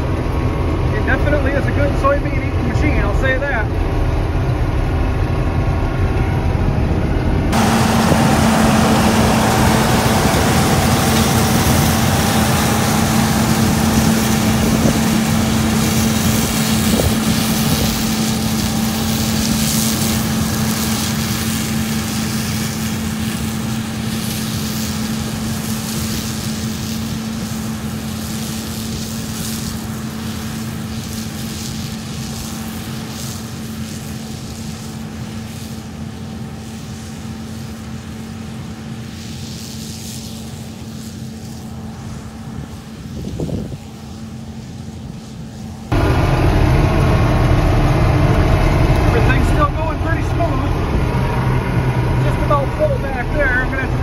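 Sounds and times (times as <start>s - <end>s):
combine harvester engine drone: 0.0s - 54.0s
wind noise on microphone: 5.6s - 18.5s, 42.6s - 44.3s.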